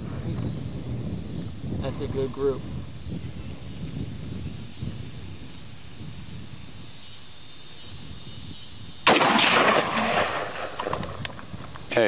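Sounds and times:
rifle shot with echo: 0:09.0 - 0:11.2.

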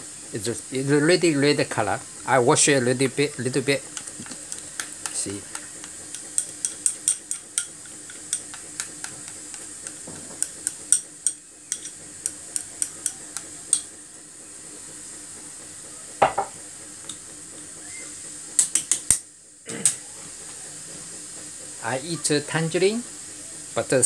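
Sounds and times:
chopsticks tapping a bowl: 0:03.9 - 0:13.9, 0:16.2 - 0:16.5.

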